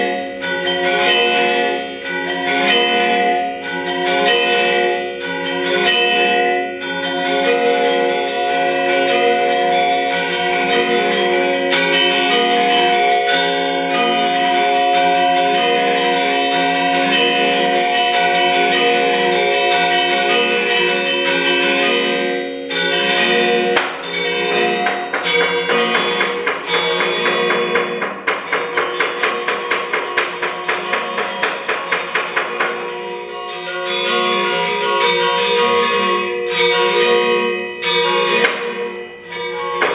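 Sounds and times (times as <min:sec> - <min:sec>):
bronze metallophone ensemble playing: 0:00.0 - 0:39.9.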